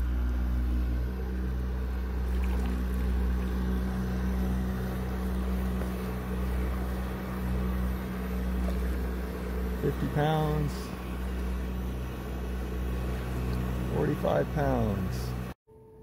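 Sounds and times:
electric motor humming: 0.0s - 15.6s
propeller churning water: 0.0s - 15.6s.

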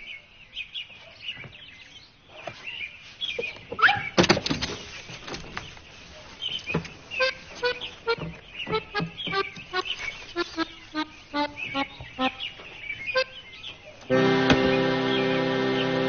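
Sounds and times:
bird chirps: 4.8s - 16.0s
honking accordion-like tune: 7.2s - 12.5s, 14.1s - 16.0s
sharp knocks: 14.4s - 14.9s.

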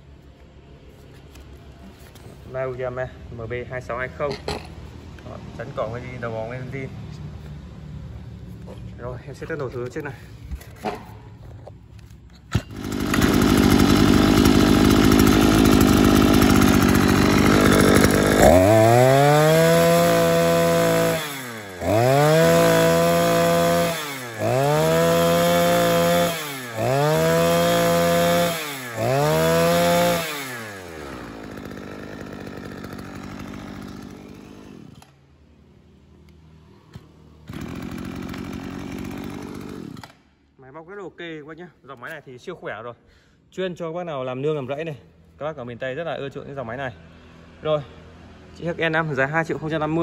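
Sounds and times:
brush cutter engine revving: 12.0s - 35.2s, 36.3s - 40.3s.

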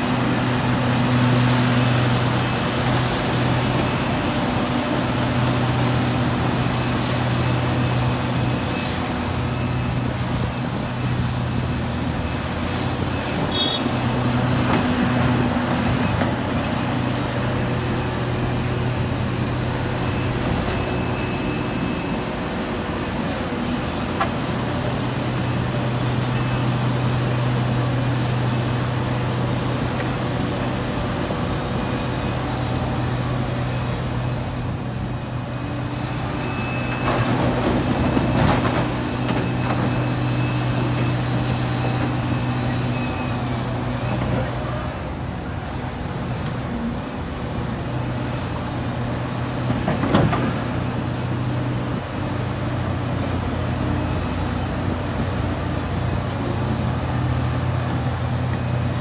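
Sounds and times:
excavator diesel engine: 0.0s - 59.0s.

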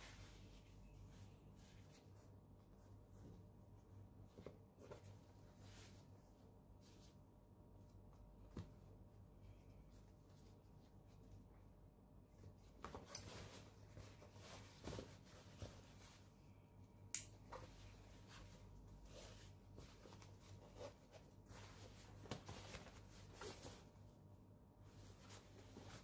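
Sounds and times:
faint steady hum: 0.0s - 26.0s
backpack fabric rustling: 17.6s - 24.0s.

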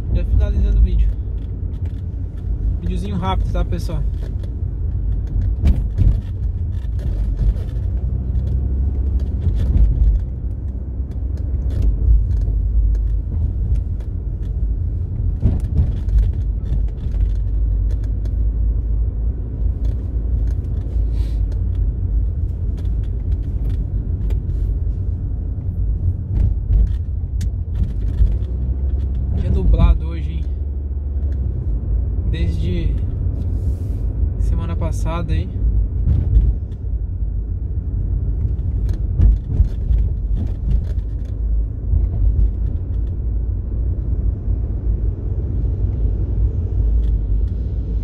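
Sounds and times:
car engine and road noise: 0.0s - 48.0s.

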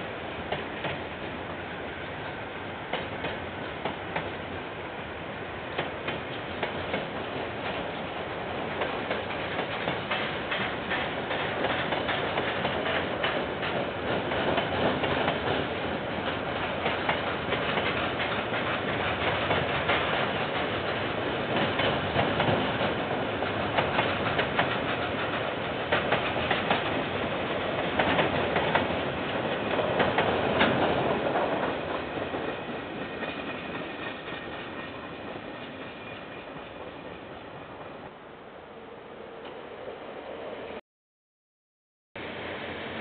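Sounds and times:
freight train wagons rolling: 8.8s - 37.9s.

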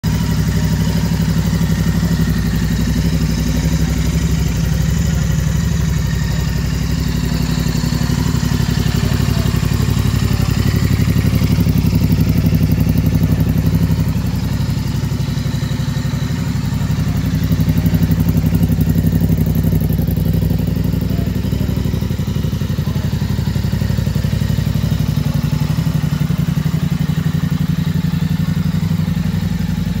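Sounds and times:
motorcycle engine idling: 0.0s - 30.0s.

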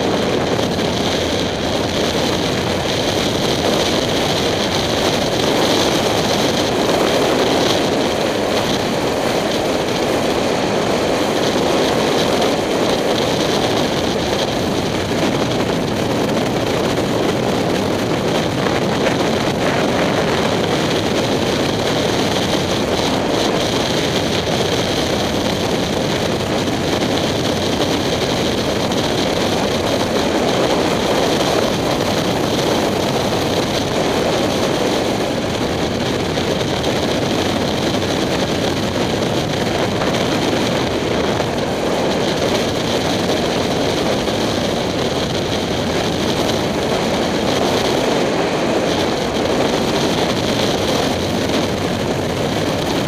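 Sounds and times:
motorcycle engine cruising: 0.0s - 53.0s
wind rush: 0.0s - 53.0s.

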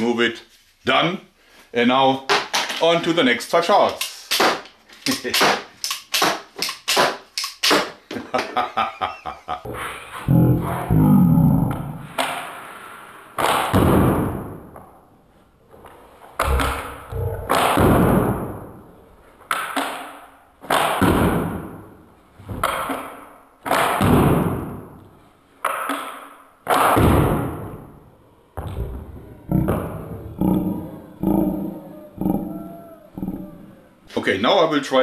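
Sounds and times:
crossbow shots snapping: 4.0s - 8.0s.

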